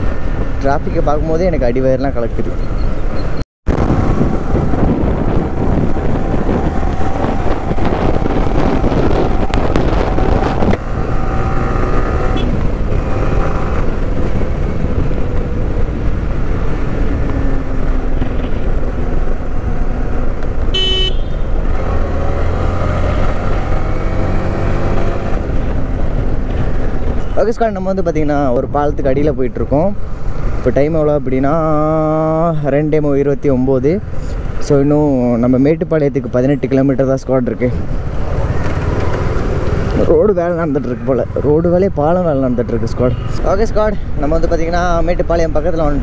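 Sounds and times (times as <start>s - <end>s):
wind and road noise: 0.0s - 46.0s
vehicle horn toot: 12.3s - 12.6s, 20.7s - 21.5s.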